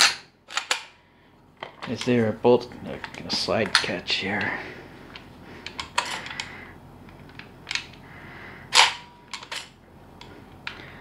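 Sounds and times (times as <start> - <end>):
airsoft rifle spring snapping: 0.0 - 0.9, 8.7 - 9.6.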